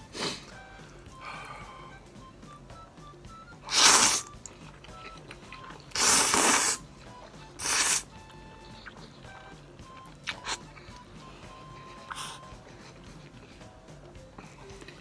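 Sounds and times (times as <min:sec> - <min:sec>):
quiet background music: 0:00.0 - 0:15.0
person slurping noodles: 0:03.6 - 0:04.4, 0:05.8 - 0:06.8, 0:07.6 - 0:08.1.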